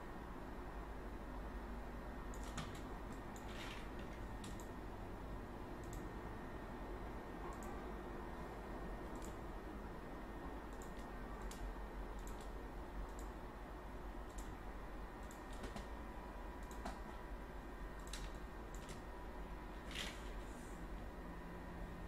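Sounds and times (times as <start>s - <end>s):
low hum and hiss: 0.0s - 22.0s
mouse and keyboard clicking: 10.7s - 13.3s, 14.3s - 14.5s, 15.2s - 15.9s, 18.0s - 19.0s.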